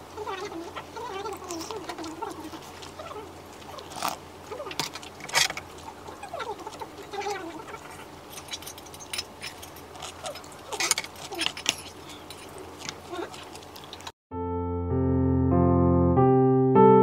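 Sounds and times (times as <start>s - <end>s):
metal spoon clinking on bowl: 8.3s - 12.9s
piano music: 14.3s - 17.0s.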